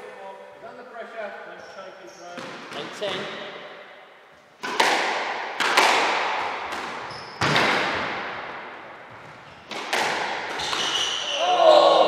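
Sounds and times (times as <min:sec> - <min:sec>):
squash ball cracks ringing: 0:09.7 - 0:10.9.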